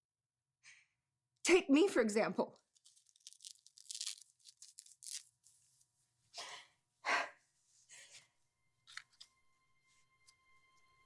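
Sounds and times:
quiet background music: 0:07.6 - 0:11.0.

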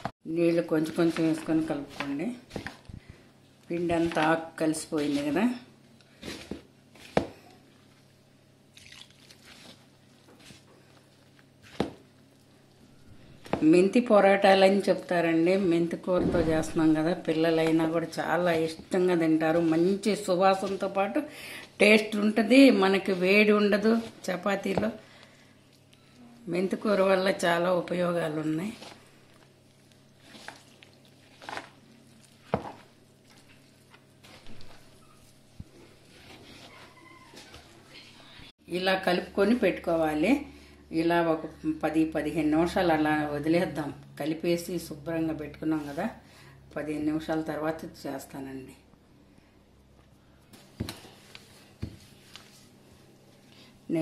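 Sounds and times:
hands kneading dough: 0:00.0 - 0:08.2, 0:09.2 - 0:12.5, 0:16.8 - 0:38.0
sharp knock: 0:16.2 - 0:17.0.

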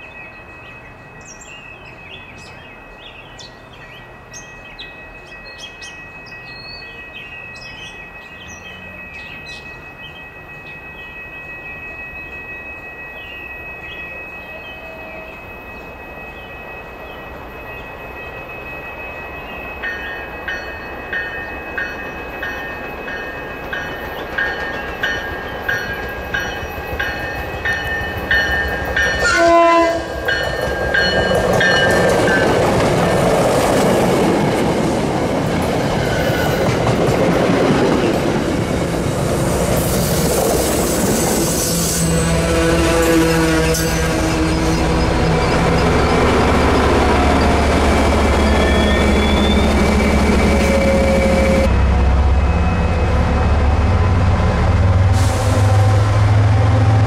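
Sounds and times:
train bell ringing: 0:00.0 - 0:57.0
train rumble: 0:00.0 - 0:57.0
train horn blast: 0:29.2 - 0:30.2, 0:41.3 - 0:46.1, 0:49.6 - 0:57.0.

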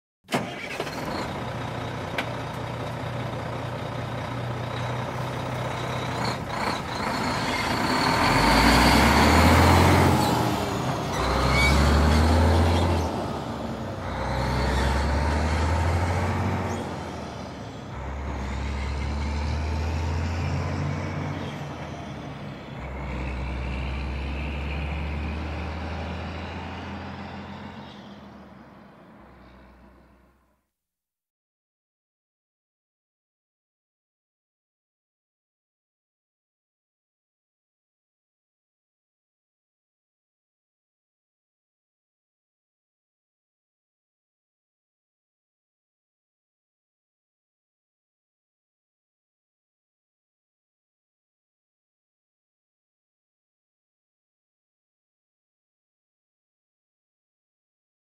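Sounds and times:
truck engine starting and idling: 0:00.3 - 0:30.3
faint high squeak: 0:11.1 - 0:12.3.

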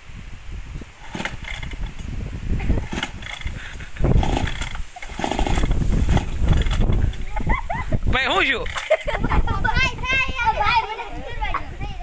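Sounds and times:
chainsaw being pull-started: 0:01.0 - 0:02.1, 0:02.8 - 0:07.3, 0:08.6 - 0:09.0.

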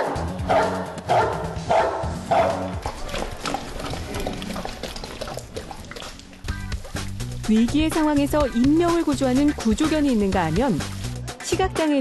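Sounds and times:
dog barking: 0:00.0 - 0:04.7
background music: 0:00.0 - 0:12.0.

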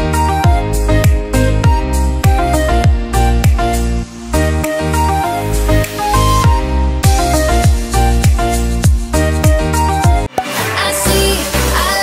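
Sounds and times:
deep kick drums: 0:00.4 - 0:03.7, 0:06.4 - 0:10.3.

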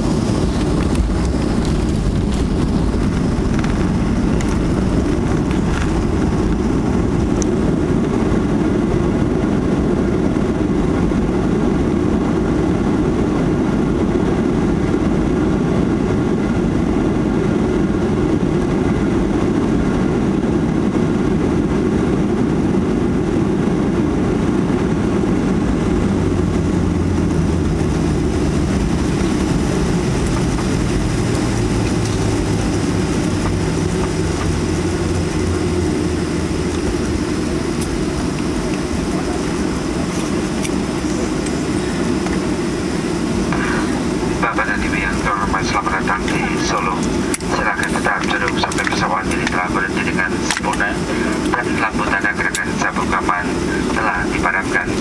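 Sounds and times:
deep engine rumble: 0:00.0 - 0:55.0
low steady hum: 0:00.0 - 0:55.0.

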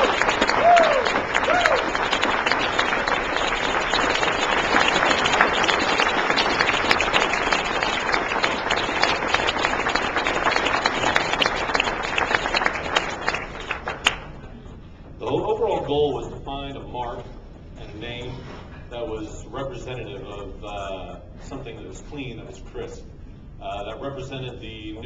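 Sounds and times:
audience applauding: 0:00.0 - 0:14.4.

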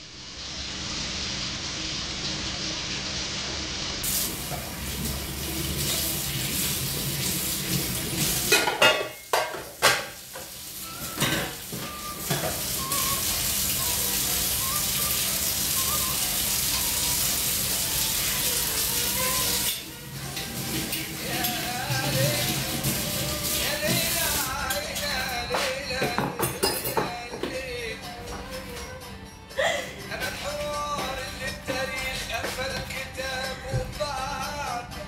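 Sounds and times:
tap water running into sink: 0:04.0 - 0:25.4
dishes and cutlery clattering: 0:08.4 - 0:12.8, 0:24.7 - 0:27.6.

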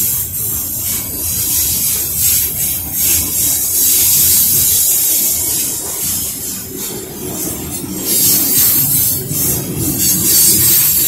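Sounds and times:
train wheels rumbling on rails: 0:00.0 - 0:11.0
high hiss: 0:07.4 - 0:11.0.

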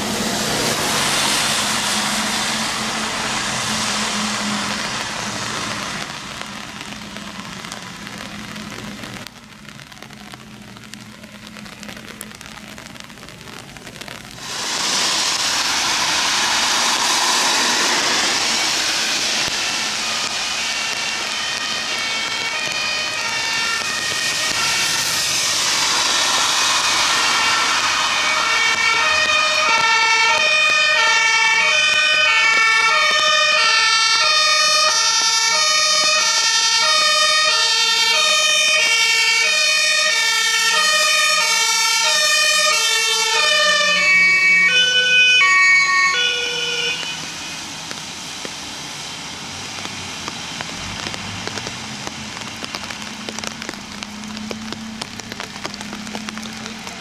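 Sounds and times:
tyres hissing on wet road: 0:00.0 - 0:57.0
engine running: 0:14.2 - 0:33.2
second siren: 0:15.6 - 0:47.7
two-tone siren: 0:18.0 - 0:47.7.

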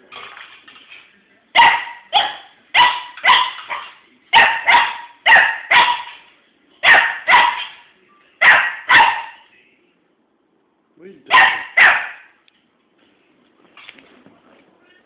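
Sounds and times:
small dog barking: 0:01.6 - 0:06.2, 0:06.8 - 0:07.8, 0:08.4 - 0:09.4, 0:11.3 - 0:12.4.

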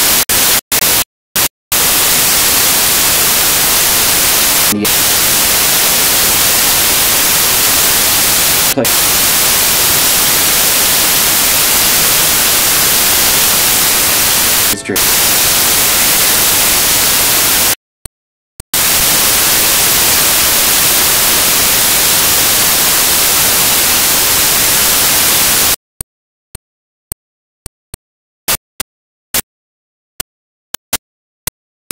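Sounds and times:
static hiss: 0:00.0 - 0:17.8, 0:18.8 - 0:25.8.

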